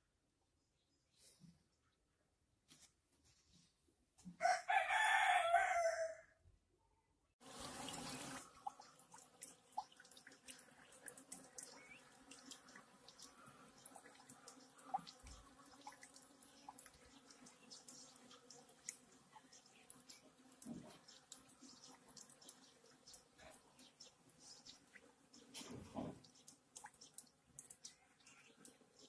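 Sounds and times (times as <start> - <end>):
rooster crowing: 4.4 - 6.4
bees buzzing: 7.4 - 25.4.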